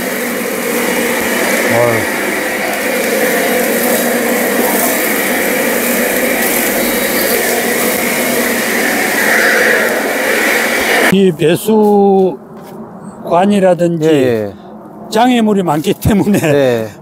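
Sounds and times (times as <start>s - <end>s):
leaf blower running: 0.0s - 11.1s.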